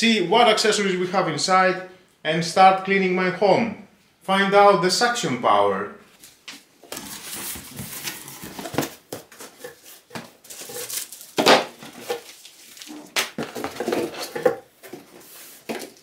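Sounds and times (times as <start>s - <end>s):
plastic wrapping rustling: 6.2s - 16.0s
cardboard sliding and scraping: 6.9s - 16.0s.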